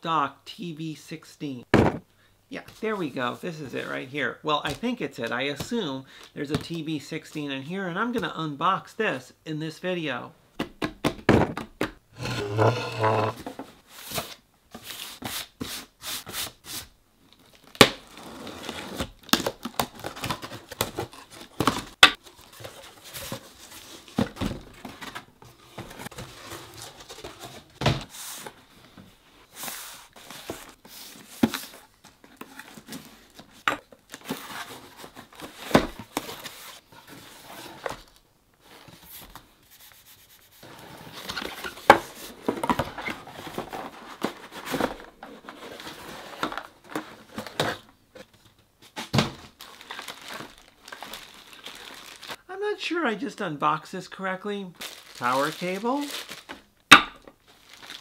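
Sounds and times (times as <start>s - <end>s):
cardboard rubbing and scraping: 12.2s - 13.7s.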